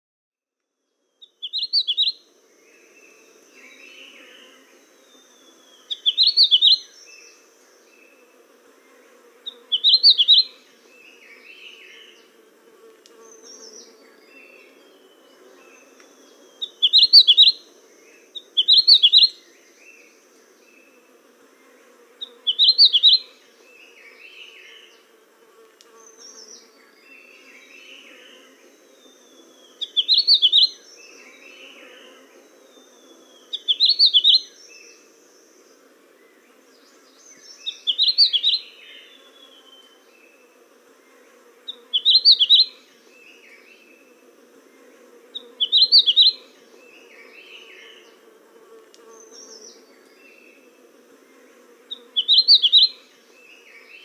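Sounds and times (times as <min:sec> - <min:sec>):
soft bird chirps: 0:36.8 - 0:40.5.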